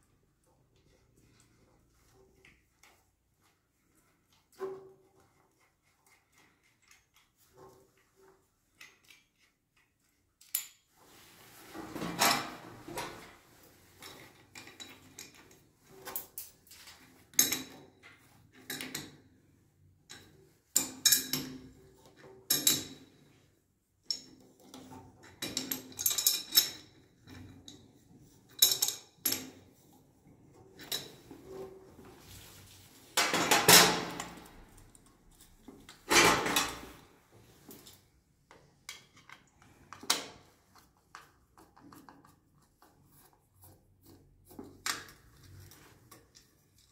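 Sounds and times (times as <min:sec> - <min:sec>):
metal fittings clicking and clinking: 0:08.7 - 0:10.9.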